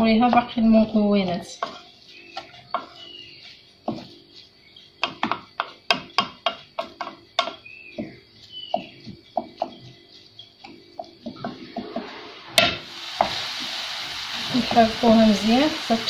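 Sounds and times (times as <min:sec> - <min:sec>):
wooden spatula scraping frying pan: 0:00.3 - 0:13.8.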